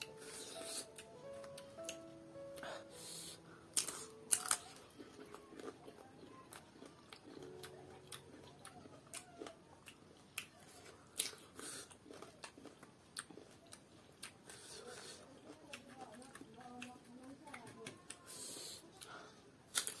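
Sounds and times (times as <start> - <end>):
chewing crunches: 3.7 - 19.1, 19.7 - 20.0.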